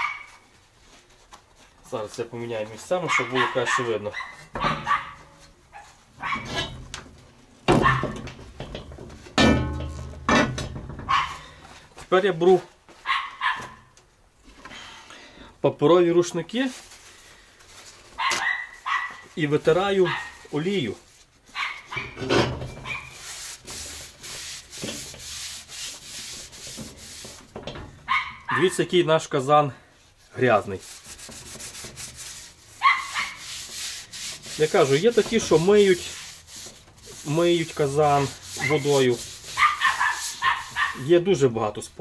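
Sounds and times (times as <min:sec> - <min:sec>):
heavy iron pot clunking on table: 0:07.7 - 0:11.1, 0:22.2 - 0:22.8
metallic ring: 0:09.4 - 0:10.2
paper towel wiping oil in pot: 0:18.8 - 0:21.9, 0:22.8 - 0:27.5, 0:30.2 - 0:41.5.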